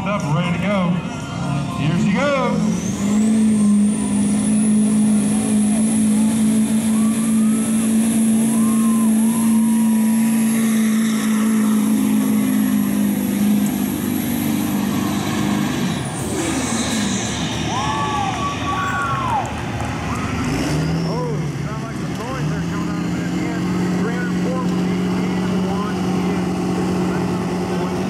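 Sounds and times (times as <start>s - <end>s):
diesel engine drone: 0.0s - 28.0s
turbocharger whistle: 1.1s - 13.2s, 16.2s - 21.4s.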